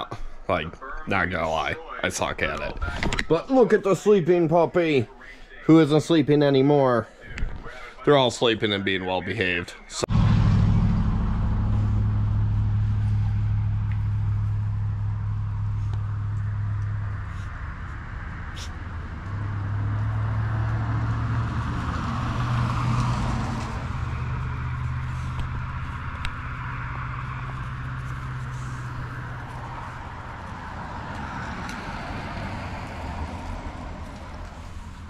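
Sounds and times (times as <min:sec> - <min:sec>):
engine humming: 0:10.0 - 0:35.0.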